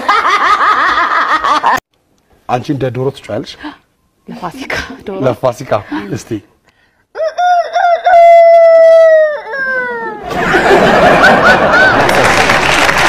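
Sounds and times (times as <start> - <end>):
woman imitating rooster crow: 7.2 - 10.2
audience laughter: 10.2 - 12.8
audience applause: 10.6 - 13.0.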